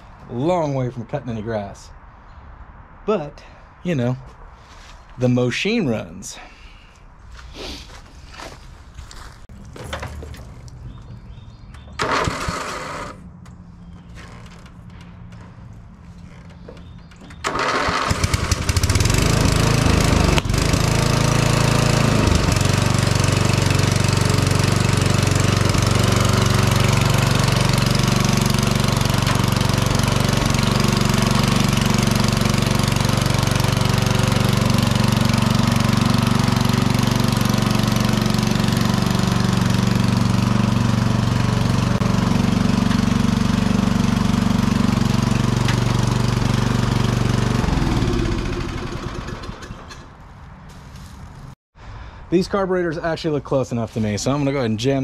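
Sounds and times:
lawn mower engine running: 11.3 - 13.6, 16.4 - 50.3.

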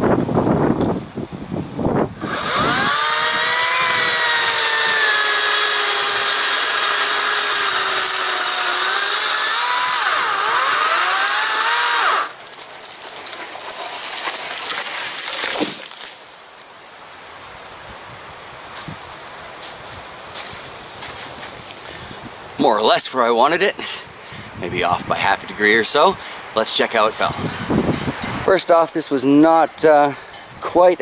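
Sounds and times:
electric chainsaw cutting wood: 2.2 - 12.6.

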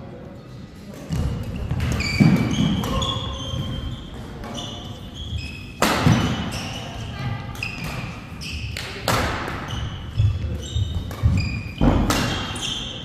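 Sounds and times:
court shoes squeaking: 0.9 - 13.0
racket hitting shuttlecock: 5.8 - 6.8, 7.6 - 10.0, 10.8 - 13.0.

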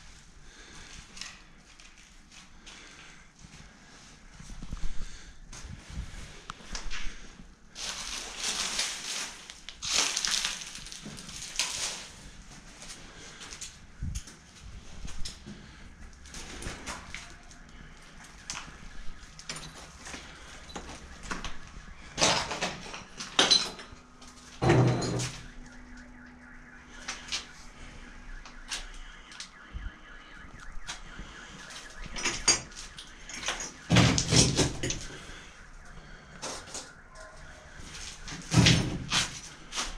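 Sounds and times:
footsteps crunching over rubble: 0.5 - 25.7, 30.4 - 39.9.

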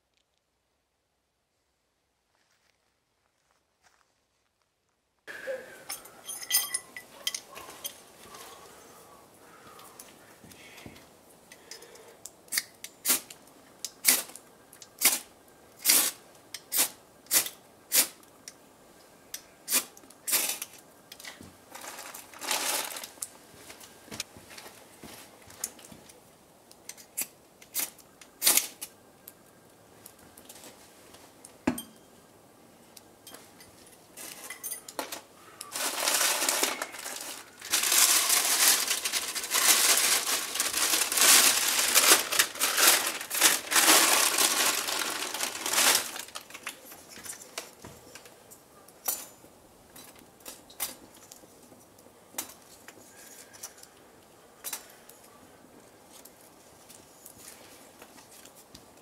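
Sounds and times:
loud rustling and crinkling: 19.8 - 26.2, 34.1 - 48.4.

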